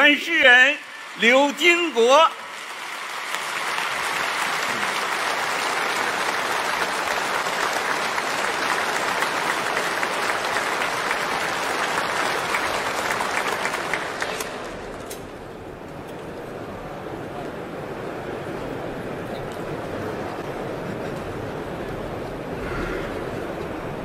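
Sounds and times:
large audience applause: 0.0s - 15.1s.

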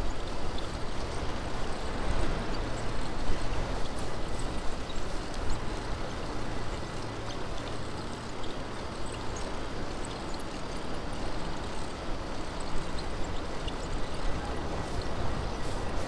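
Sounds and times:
wind buffeting microphone: 13.2s - 16.0s.

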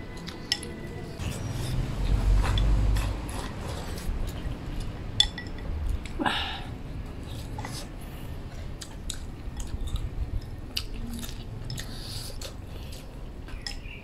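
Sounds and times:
eating sounds: 0.0s - 14.0s
chopsticks clicking against bowls: 0.1s - 1.0s, 2.4s - 6.2s, 8.8s - 14.0s.

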